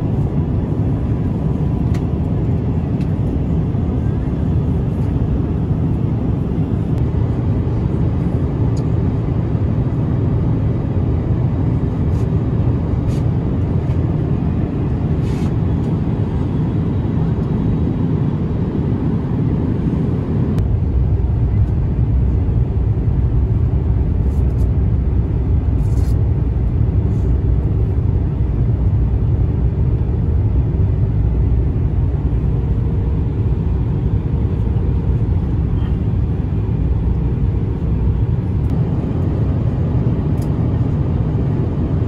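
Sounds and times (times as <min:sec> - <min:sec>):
airliner cabin engine rumble: 0:00.0 - 0:42.0.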